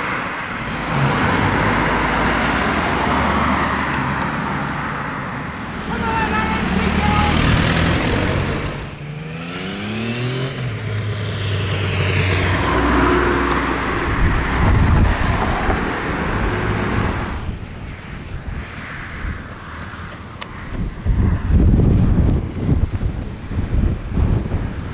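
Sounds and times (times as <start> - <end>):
vehicle engine speeding up: 0.5 - 17.6
vehicle passing by: 0.5 - 23.0.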